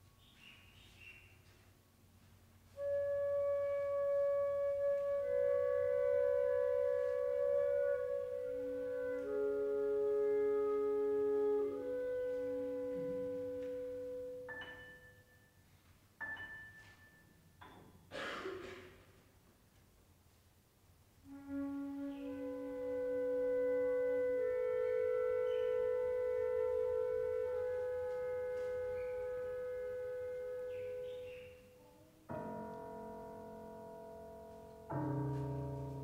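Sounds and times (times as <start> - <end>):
flute and clarinet playing: 2.7 - 14.5, 21.2 - 32.2.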